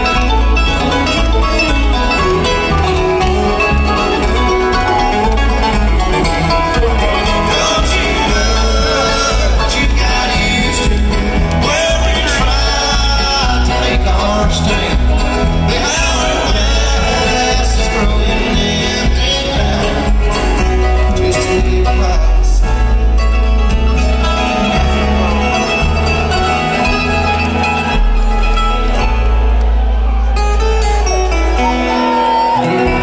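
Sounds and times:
acoustic guitar: 0.0 - 33.0
banjo: 0.0 - 33.0
other string instruments: 0.0 - 33.0
upright bass: 0.0 - 33.0.

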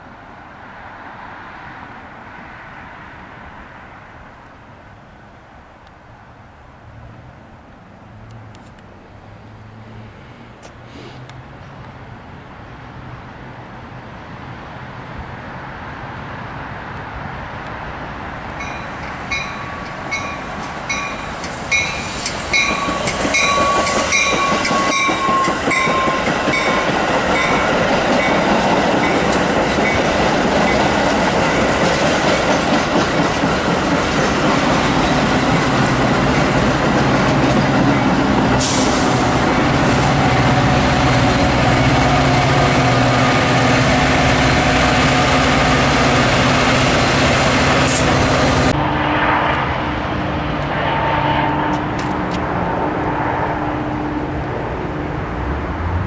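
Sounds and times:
diesel locomotive engine drone: 0.0 - 56.0
train wheels rumbling and clicking: 18.4 - 48.8
bell ringing: 18.6 - 22.0.

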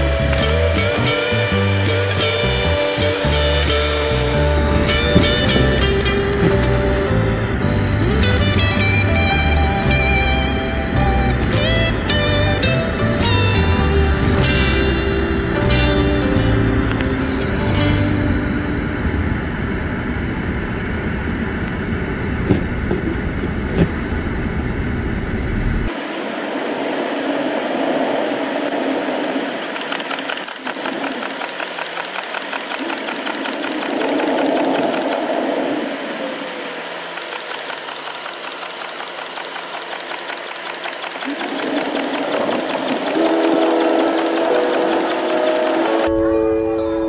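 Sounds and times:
car road and engine noise: 0.0 - 46.1
short thumps: 22.4 - 24.2
fast even ticking: 29.5 - 46.1.

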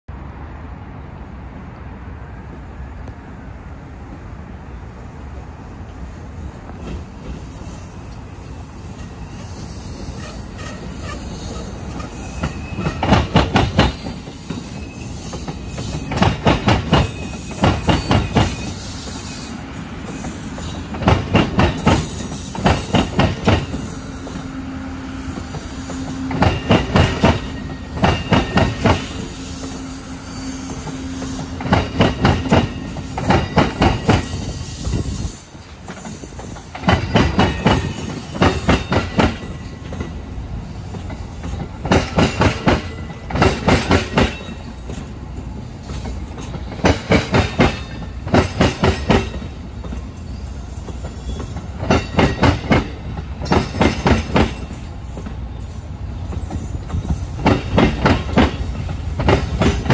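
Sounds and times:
train rolling rumble: 0.1 - 59.9
train wheel clacks: 8.9 - 19.2, 20.0 - 24.5, 25.3 - 29.8, 30.7 - 34.5, 35.6 - 40.2, 40.9 - 50.2, 50.8 - 55.4, 56.3 - 59.9
wheel squeal: 9.0 - 20.8, 50.2 - 52.2.

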